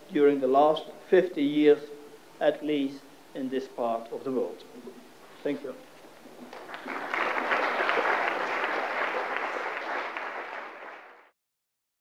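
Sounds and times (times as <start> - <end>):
audience applauding: 6.3 - 11.3.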